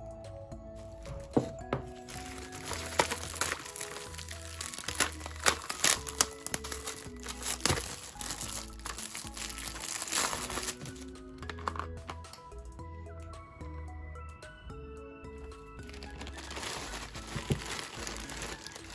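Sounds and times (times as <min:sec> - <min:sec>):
soft background music: 0:00.0 - 0:18.9
plastic wrapping crinkling: 0:00.8 - 0:12.2, 0:15.8 - 0:18.9.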